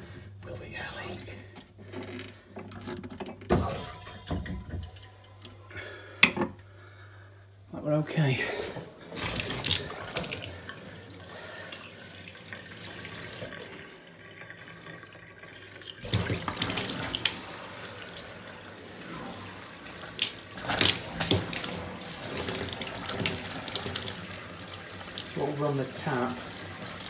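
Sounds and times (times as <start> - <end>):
water pouring into steel sink: 3.5 - 6.0, 9.0 - 27.0.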